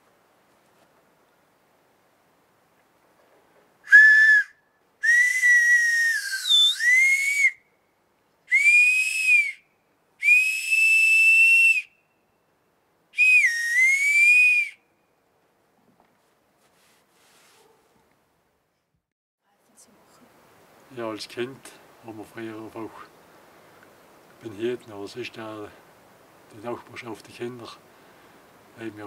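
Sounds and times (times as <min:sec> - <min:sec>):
shrill breathy bark whistle: 0:03.8 - 0:07.6.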